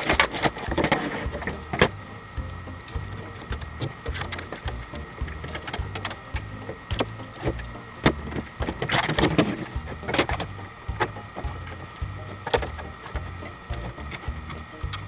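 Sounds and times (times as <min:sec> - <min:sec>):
background music: 0:00.0 - 0:15.0
metal parts clicking and clinking: 0:02.9 - 0:15.0.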